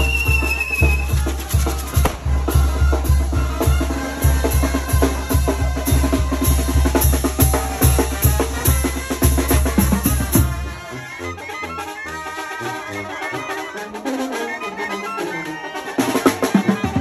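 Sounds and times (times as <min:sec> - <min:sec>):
music with fast bass-drum beat: 0:00.0 - 0:10.8.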